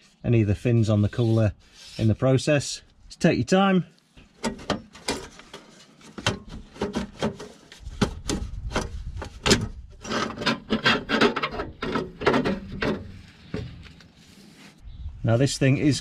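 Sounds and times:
rubbing and scraping: 0:00.0 - 0:02.4, 0:04.2 - 0:15.5
metal knocks and clicks: 0:04.4 - 0:05.4, 0:08.0 - 0:13.8.

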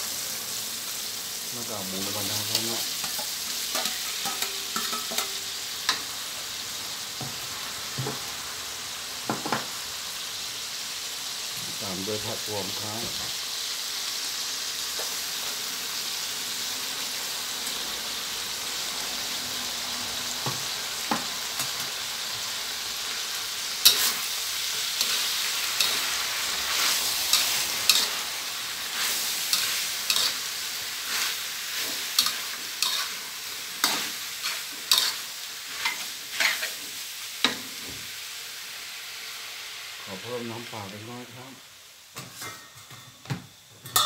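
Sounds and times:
food sizzling in oil in a wok: 0:00.0 - 0:44.0
metal spatula scraping a wok: 0:02.5 - 0:05.6, 0:23.8 - 0:36.9.

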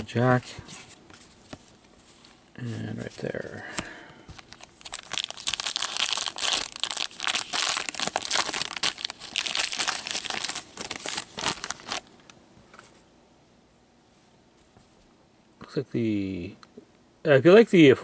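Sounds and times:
plastic wrapper tearing and crinkling: 0:04.4 - 0:12.1.

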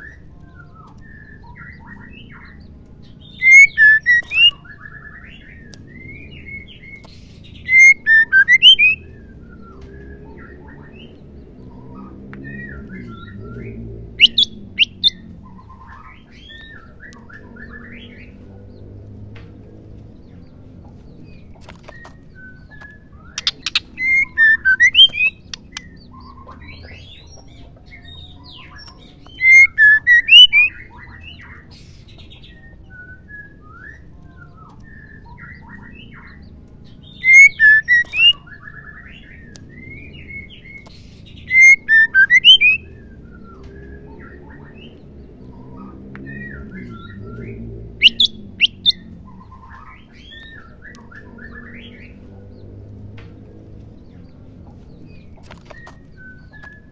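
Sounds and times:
faint bird chirps: 0:00.0 - 0:18.5, 0:20.9 - 0:52.3
bird calling in sharp notes: 0:03.2 - 0:07.0, 0:07.6 - 0:09.8, 0:12.5 - 0:18.1, 0:22.5 - 0:27.2, 0:28.8 - 0:31.3, 0:37.1 - 0:40.8, 0:41.4 - 0:43.5, 0:46.3 - 0:52.1.

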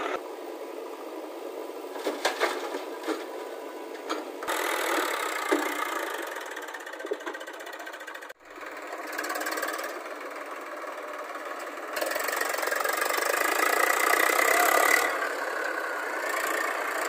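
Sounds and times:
diesel engine running: 0:00.0 - 0:17.0
sharp knocks and clatters: 0:04.0 - 0:06.0, 0:06.9 - 0:07.6.

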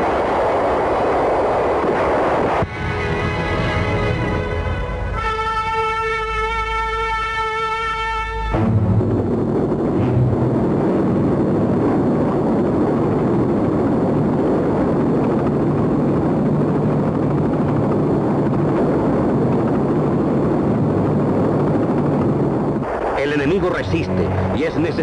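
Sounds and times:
helicopter rotor and engine noise: 0:08.5 - 0:25.0.

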